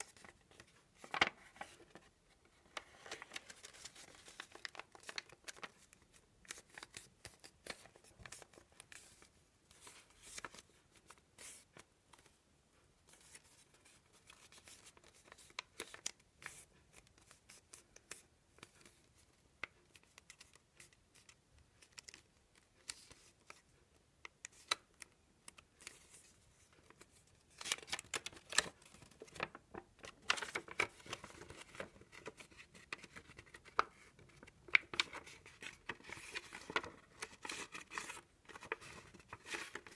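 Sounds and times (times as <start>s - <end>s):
paper rustling and creasing: 0.0s - 12.4s, 24.5s - 39.9s.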